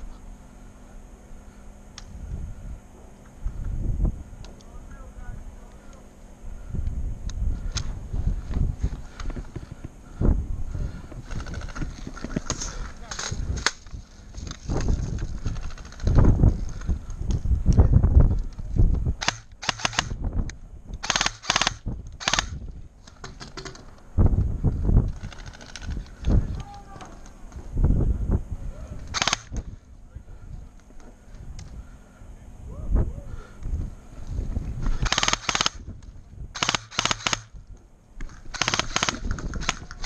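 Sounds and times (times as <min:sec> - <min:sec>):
airsoft rifle bursts: 0:19.2 - 0:20.2, 0:21.0 - 0:22.6, 0:29.1 - 0:29.6, 0:34.9 - 0:35.8, 0:36.6 - 0:37.6, 0:38.5 - 0:40.0.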